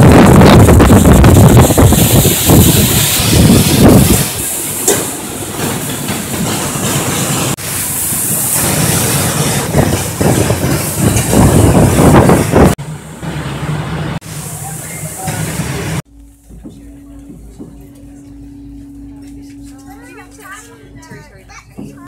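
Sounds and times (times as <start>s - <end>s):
wind buffeting microphone: 0.0s - 4.6s, 9.3s - 12.8s.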